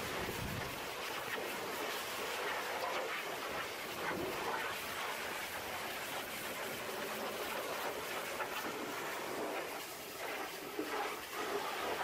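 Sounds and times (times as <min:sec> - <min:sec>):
pressure washer spraying: 0:06.6 - 0:12.0.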